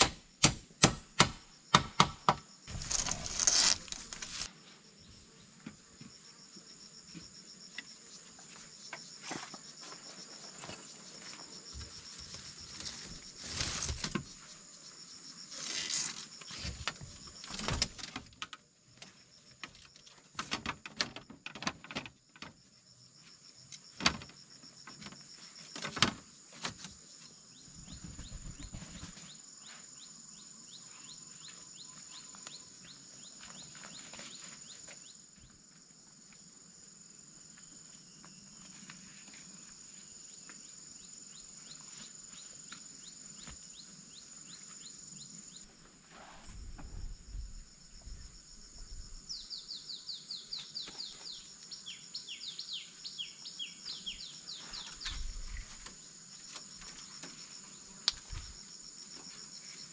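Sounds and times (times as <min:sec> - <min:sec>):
insects droning: 0:00.0 - 0:59.9
bird chirping: 0:49.2 - 0:55.4.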